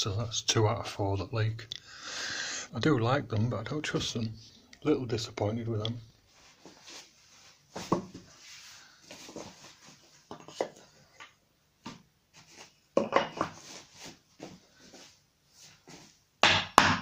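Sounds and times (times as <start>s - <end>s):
wooden blocks knocking and scraping: 7.7s - 8.3s, 9.1s - 15.1s.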